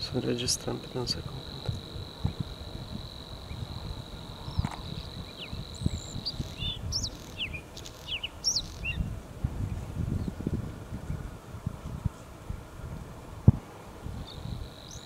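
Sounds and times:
bird singing high chirps: 0.8 - 9.1, 14.2 - 15.0.

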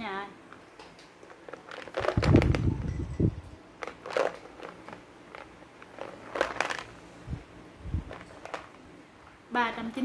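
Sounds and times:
bottle handling thumps and rustling: 0.8 - 6.9.

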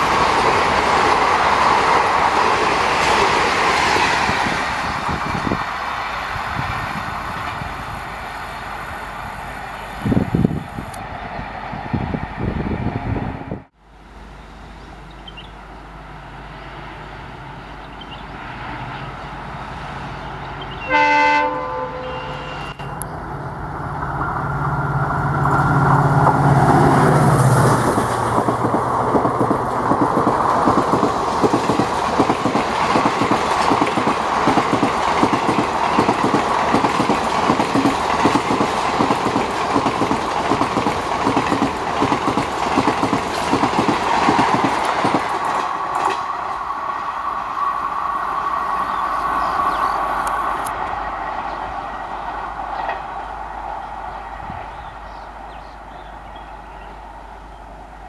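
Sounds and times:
locomotive engine passing: 0.0 - 58.0
train horn blast: 20.8 - 23.0
train wheels clickety-clack: 27.5 - 46.3.

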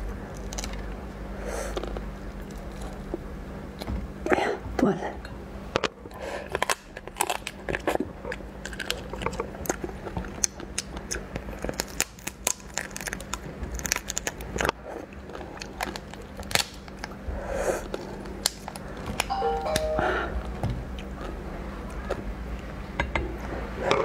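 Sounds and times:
shell cracking and crunching: 0.3 - 0.9, 6.5 - 14.7, 15.6 - 17.1.

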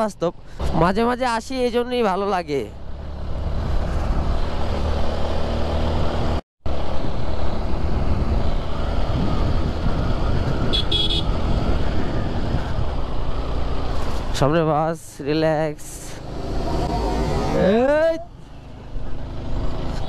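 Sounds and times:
wind rush on microphone: 6.9 - 13.2
horn toot: 10.7 - 11.3.

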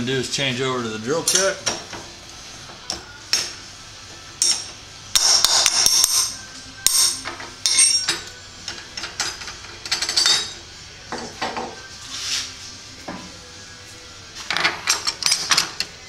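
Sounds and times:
metallic clanks of tool holder: 9.0 - 11.7.

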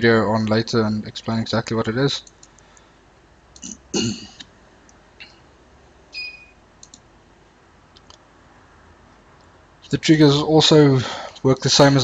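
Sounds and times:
computer mouse clicks: 2.2 - 2.9, 6.8 - 7.1.

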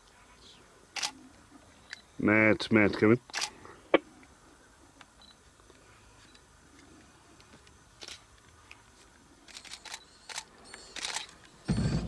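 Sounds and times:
camera shutter clicks: 1.0 - 1.2, 3.3 - 3.5, 9.5 - 11.6.

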